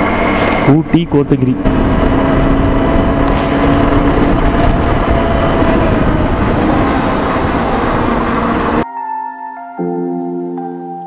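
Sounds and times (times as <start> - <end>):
motorcycle engine drone: 0.0 - 8.8
wind rushing on microphone: 0.0 - 8.8.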